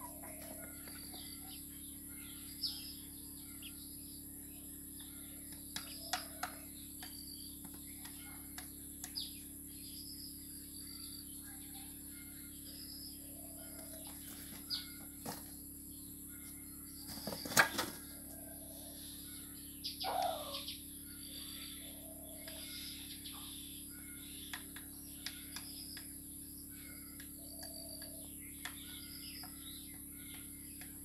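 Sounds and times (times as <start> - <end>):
chickens feeding: 0.0 - 1.8, 13.4 - 15.6, 17.0 - 18.8
small birds chirping: 0.0 - 31.0.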